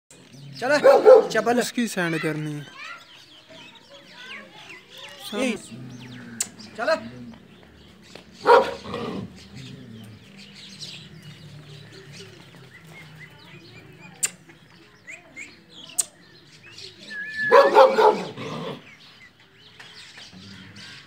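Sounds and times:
birds chirping faintly: 0:00.1 - 0:21.0
dog barking: 0:00.8 - 0:01.5, 0:08.4 - 0:08.9, 0:17.4 - 0:18.4.

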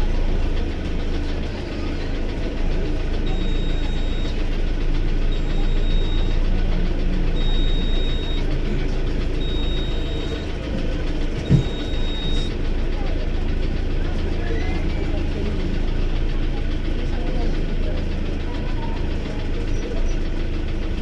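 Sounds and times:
diesel bus engine running: 0:00.0 - 0:21.0
high beep: 0:03.3 - 0:04.4, 0:05.3 - 0:06.4, 0:07.4 - 0:08.5, 0:09.4 - 0:10.5, 0:11.4 - 0:12.5.

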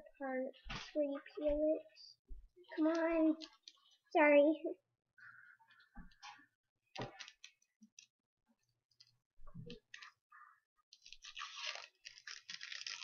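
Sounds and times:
plastic label crinkling rustle: 0:11.0 - 0:13.0.

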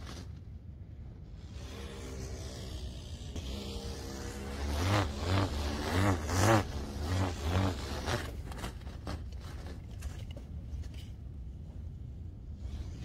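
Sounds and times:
stunt kite buzzing: 0:00.0 - 0:10.4, 0:12.6 - 0:13.0.

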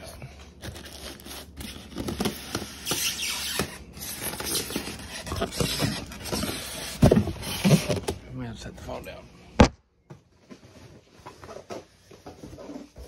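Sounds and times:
styrofoam squeaking against cardboard: 0:00.8 - 0:07.9.

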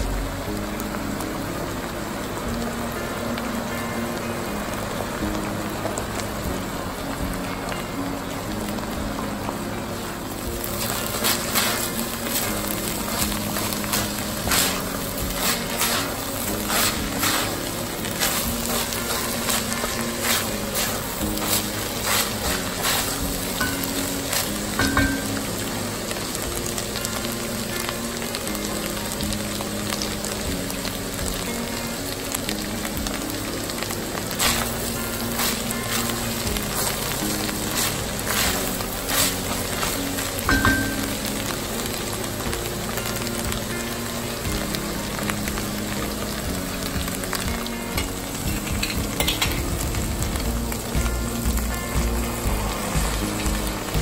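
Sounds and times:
meat sizzling in a pot: 0:00.0 - 0:54.0
soft guitar music: 0:00.0 - 0:54.0
wooden spoon scraping frying meat: 0:10.6 - 0:25.5, 0:33.8 - 0:41.9.

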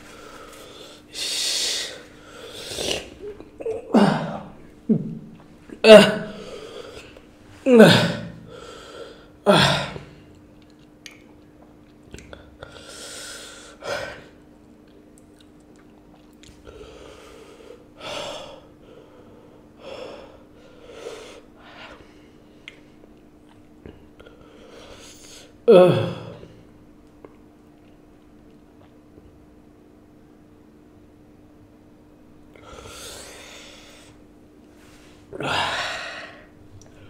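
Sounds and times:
man breathing heavily: 0:00.0 - 0:03.0, 0:06.2 - 0:10.1, 0:32.6 - 0:34.2, 0:34.9 - 0:37.0
man crying out in pain: 0:03.6 - 0:05.2, 0:05.8 - 0:06.5, 0:07.7 - 0:08.4, 0:09.4 - 0:10.1.

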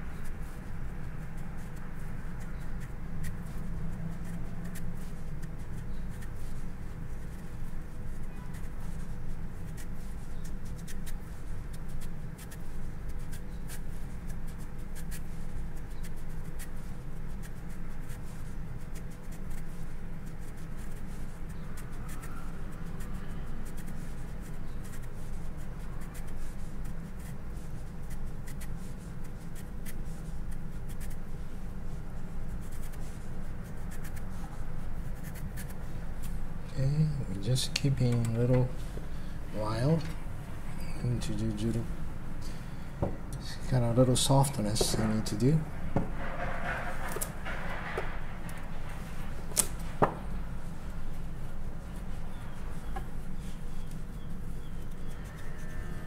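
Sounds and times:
knife shaving radish: 0:00.0 - 0:38.8, 0:50.5 - 0:56.0
steady low hum: 0:00.0 - 0:56.0.

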